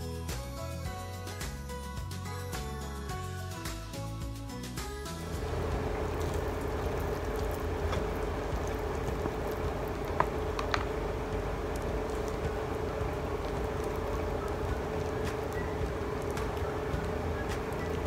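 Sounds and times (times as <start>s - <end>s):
low background hum: 5.1s - 18.0s.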